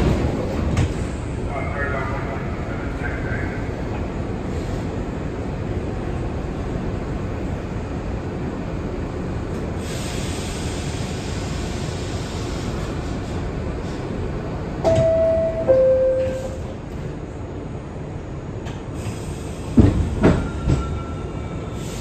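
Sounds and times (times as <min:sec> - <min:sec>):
subway car noise: 0:00.0 - 0:22.0
two-tone descending door chime: 0:14.9 - 0:16.6.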